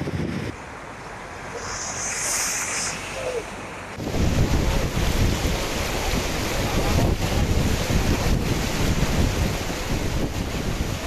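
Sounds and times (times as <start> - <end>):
rumbling wind noise: 0.0 - 0.6, 1.4 - 11.0
wind buffeting microphone: 0.0 - 0.6, 1.8 - 11.0
flowing floodwater: 0.5 - 11.0.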